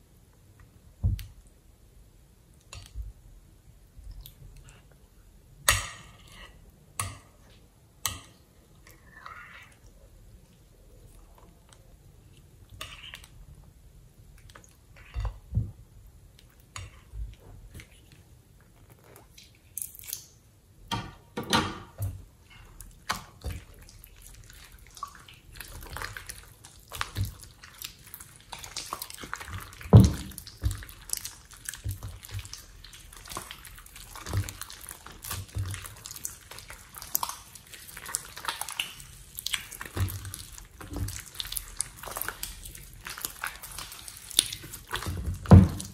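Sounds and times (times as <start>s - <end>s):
slime squelching by hand: 22.3s - 45.9s.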